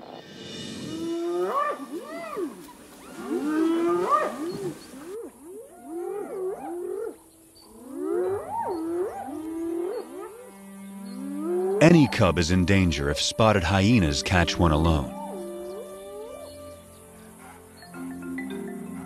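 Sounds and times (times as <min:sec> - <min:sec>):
hyenas calling: 0:03.1 - 0:10.4, 0:11.2 - 0:19.0.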